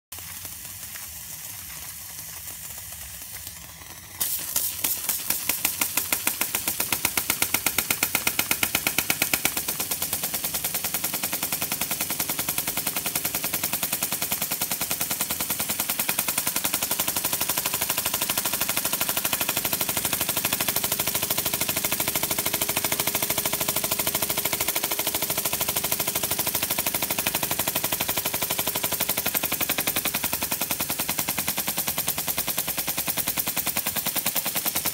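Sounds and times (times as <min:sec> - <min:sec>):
steam hiss: 0:00.2 - 0:22.1
steam engine exhaust chuffs: 0:00.2 - 0:34.9.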